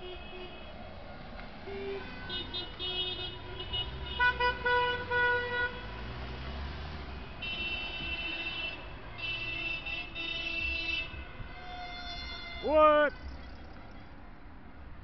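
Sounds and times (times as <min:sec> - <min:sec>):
passing traffic rumble: 0:00.0 - 0:15.0
car horns honking: 0:01.6 - 0:06.0, 0:07.3 - 0:13.7.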